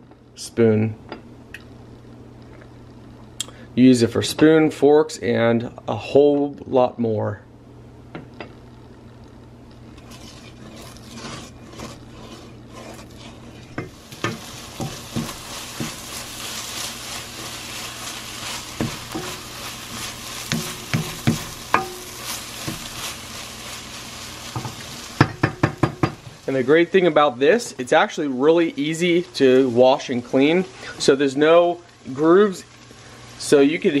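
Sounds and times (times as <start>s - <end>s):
eggs sizzling in a saucepan: 9.8s - 34.0s
wooden spoon scraping a pan: 9.9s - 26.6s.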